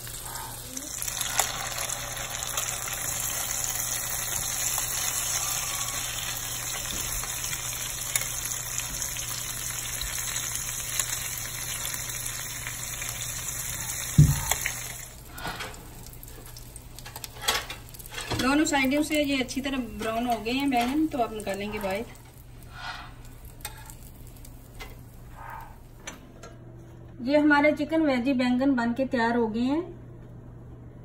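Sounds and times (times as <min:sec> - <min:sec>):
oil sizzling in a pan: 0:00.0 - 0:25.7
loud knock: 0:14.2 - 0:14.5.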